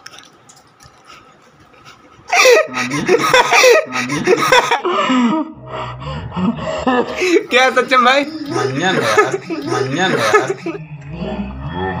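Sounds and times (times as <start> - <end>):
man laughing loudly: 2.3 - 5.5, 6.9 - 10.8.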